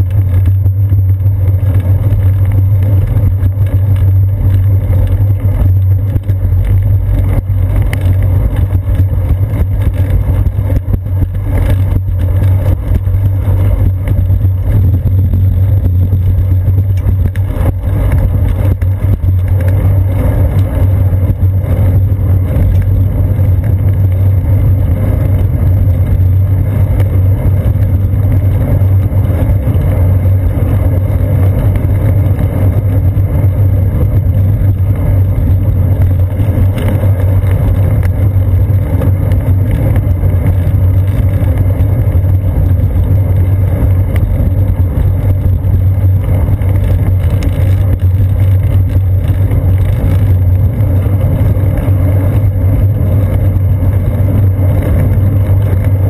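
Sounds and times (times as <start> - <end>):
bicycle riding rumble: 0.0 - 56.0.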